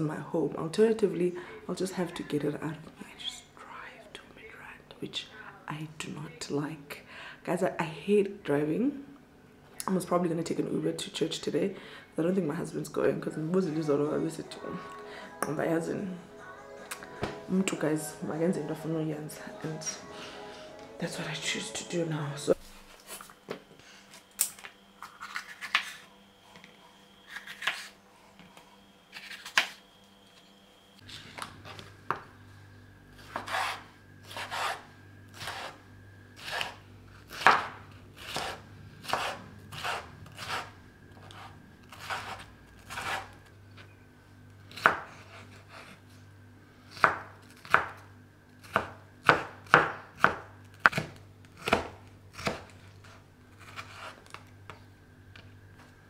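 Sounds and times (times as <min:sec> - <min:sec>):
faint low hum: 0:00.0 - 0:56.0
knife chopping on wooden board: 0:33.3 - 0:34.8, 0:37.4 - 0:40.7, 0:44.8 - 0:45.1, 0:47.0 - 0:48.0, 0:48.7 - 0:52.7.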